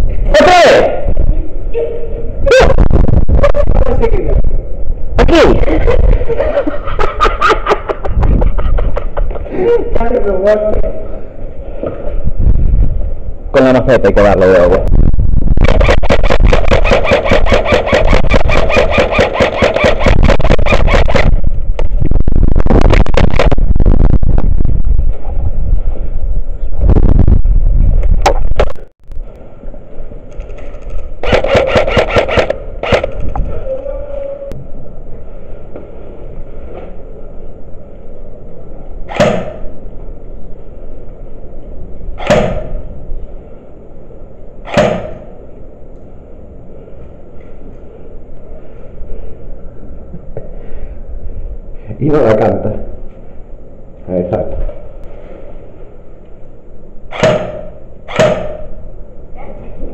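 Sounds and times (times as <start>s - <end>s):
loud low rumble: 12.2s - 16.8s, 20.0s - 30.1s
airsoft gun firing: 15.6s - 21.3s, 31.2s - 33.2s.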